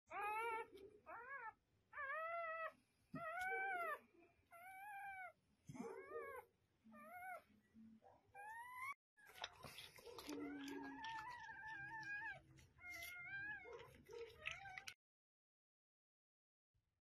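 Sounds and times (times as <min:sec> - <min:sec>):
puppy crying: 0:00.1 - 0:07.5, 0:10.1 - 0:15.0.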